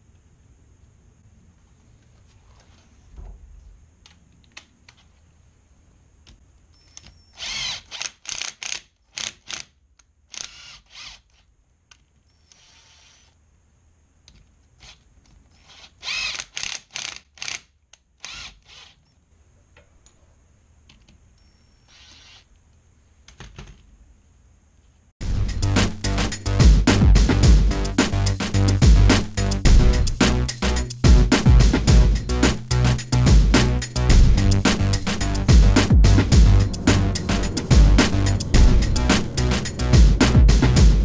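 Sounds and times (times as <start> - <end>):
cordless drill bursts: 6.9 - 8.5, 10.4 - 11.2, 12.4 - 13.3, 15.6 - 17.6, 18.2 - 19.0.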